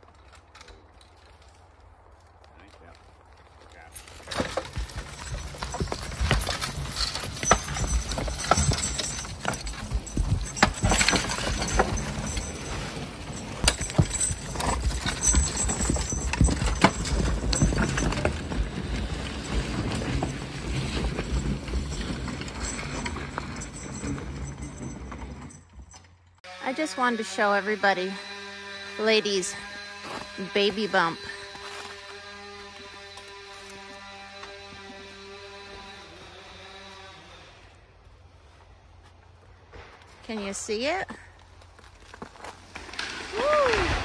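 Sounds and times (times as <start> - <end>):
horse hooves falling: 0.0 - 26.2, 39.1 - 44.0.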